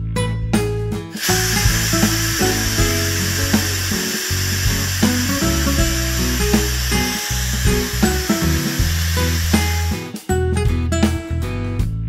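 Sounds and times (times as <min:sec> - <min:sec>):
background music: 0:00.0 - 0:12.0
pressure cooker venting steam: 0:01.2 - 0:10.0.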